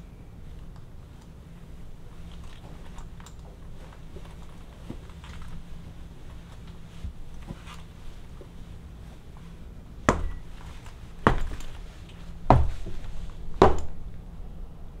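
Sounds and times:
heels on hard floor: 10.1 - 14.0.

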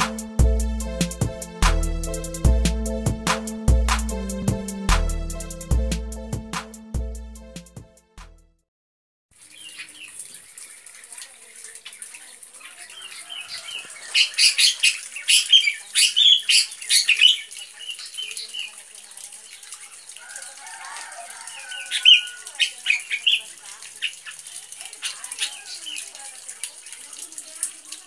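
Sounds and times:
bird chirping: 9.4 - 11.1, 11.7 - 20.2.

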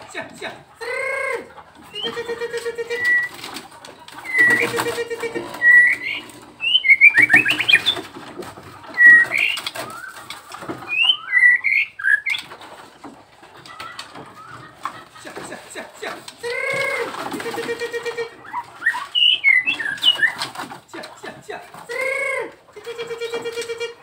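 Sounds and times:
bird whistling and trilling: 1.9 - 2.3, 2.9 - 3.5, 4.2 - 4.9, 5.5 - 8.1, 8.9 - 12.5, 18.5 - 20.4
low pulsed hooting notes: 4.3 - 8.0.

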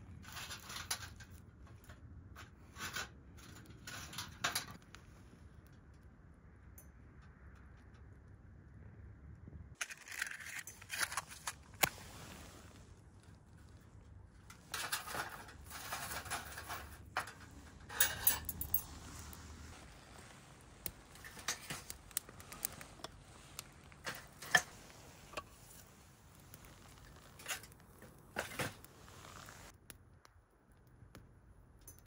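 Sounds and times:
nylon fabric rustling: 28.7 - 29.7.

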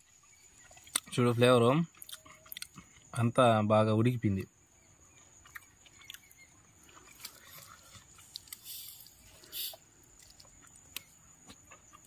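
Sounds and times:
chewing: 0.5 - 3.2, 5.1 - 12.0.

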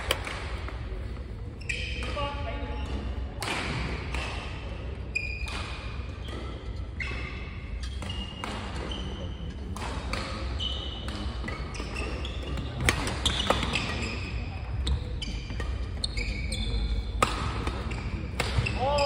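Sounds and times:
rackets hitting shuttlecock: 0.0 - 2.3, 2.9 - 4.7, 9.7 - 14.1, 17.0 - 19.0.

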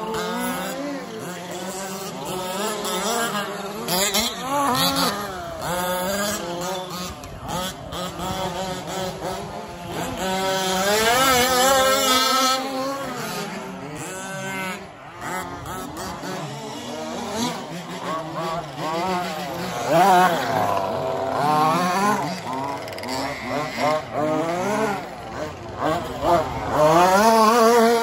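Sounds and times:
remote-control car motors whining: 0.0 - 28.0.

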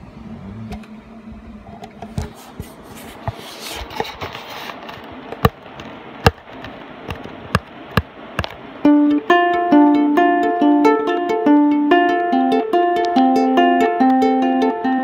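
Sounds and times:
handling rustle: 2.0 - 7.5.

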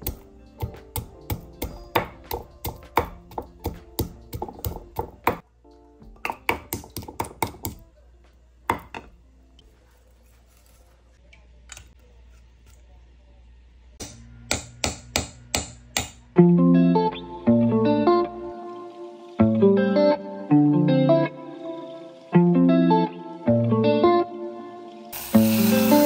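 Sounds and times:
wooden pestle pounding in mortar: 0.0 - 5.4, 6.2 - 7.8
quiet background music: 0.0 - 26.0.

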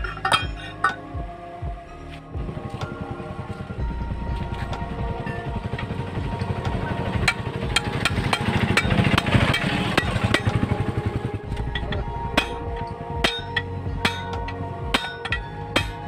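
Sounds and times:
metal rod clinking on shaft: 0.0 - 1.0
engine pulsing rumble: 0.0 - 16.0.

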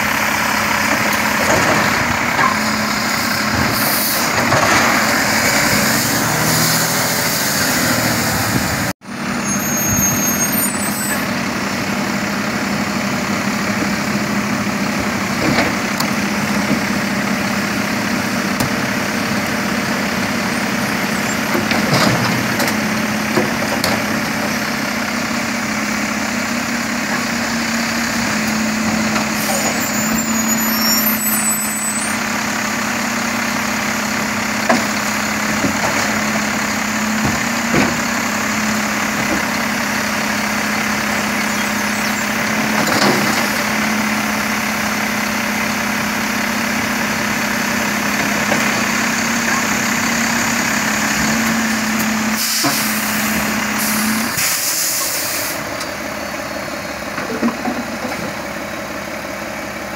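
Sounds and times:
garbage truck idling: 0.0 - 6.5, 11.2 - 59.9
side-loader arm lifting and dumping: 0.0 - 59.9.

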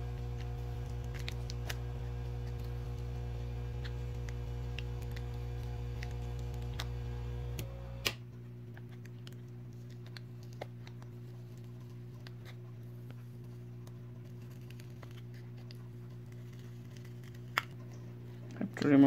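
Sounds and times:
electrical hum: 0.0 - 19.0.

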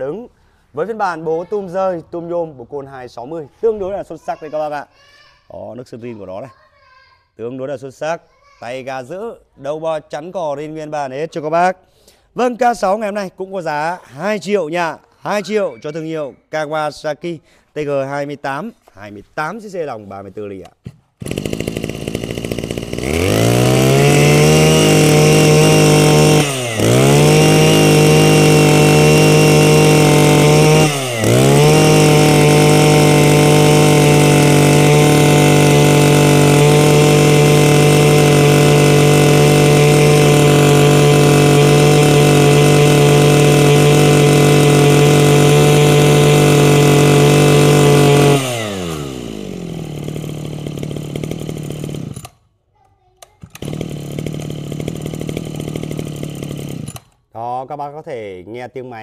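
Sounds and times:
brush cutter engine revving: 20.6 - 52.4, 53.2 - 57.2.

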